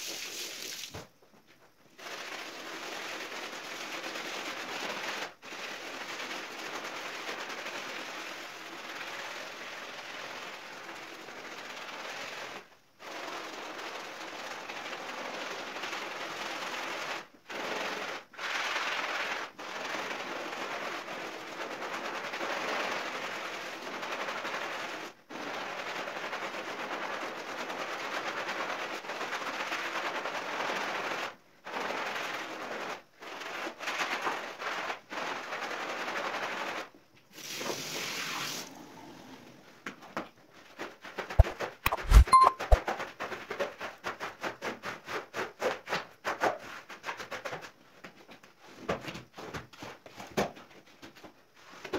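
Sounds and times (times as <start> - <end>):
scrubbing rug: 40.8 - 42.8.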